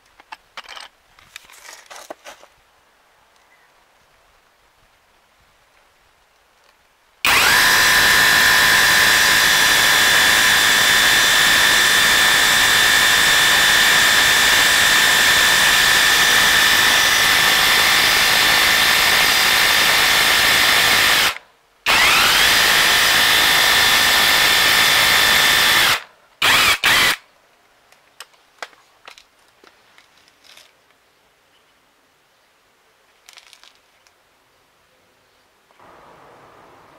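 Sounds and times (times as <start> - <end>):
rotary hammer drilling concrete: 7.3 - 27.2.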